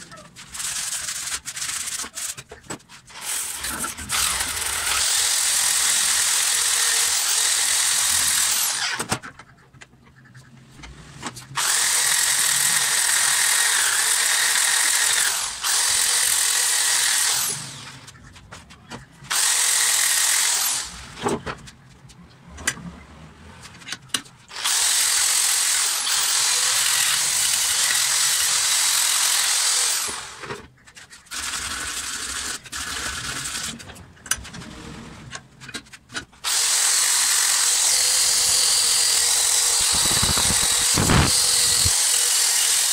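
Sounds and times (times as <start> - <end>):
drill grinding metal: 3.1 - 9.1, 11.6 - 18.1, 19.3 - 21.1, 24.5 - 30.5, 36.4 - 42.9.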